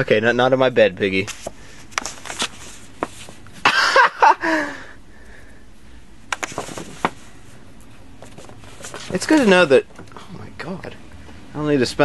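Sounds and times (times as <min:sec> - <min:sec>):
poster board flapping: 0:06.3 - 0:07.3.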